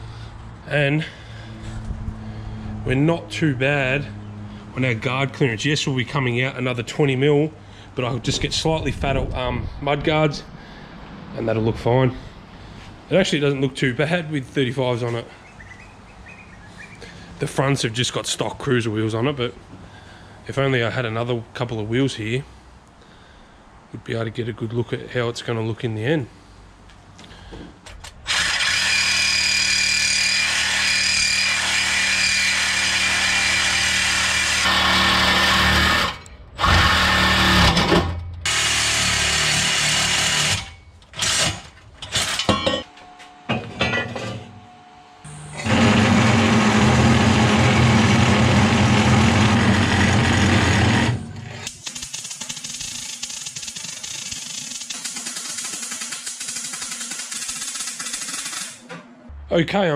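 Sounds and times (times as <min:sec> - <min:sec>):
power tools working metal: 0:28.2 - 0:58.9.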